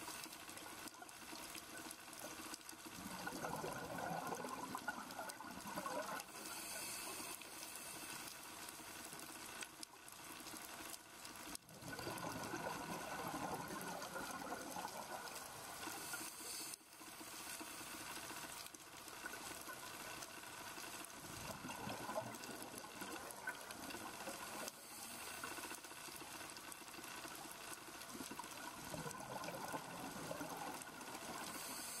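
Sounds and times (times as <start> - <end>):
exhaled air bubbles rushing: 3.0 - 6.4, 11.7 - 15.8, 21.2 - 24.8, 28.7 - 32.0
diver breathing through regulator: 6.4 - 8.1.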